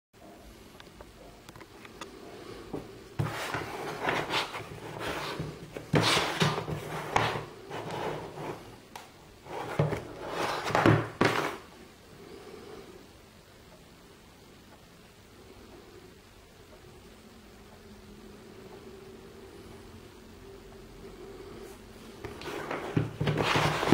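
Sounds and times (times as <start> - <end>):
hands scuffing cardboard box: 3.2 - 8.6, 9.5 - 11.6, 22.3 - 23.9.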